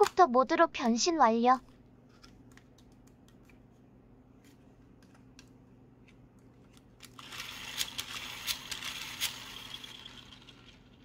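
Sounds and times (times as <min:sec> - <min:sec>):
toy motor whirring: 0:07.1 - 0:11.0.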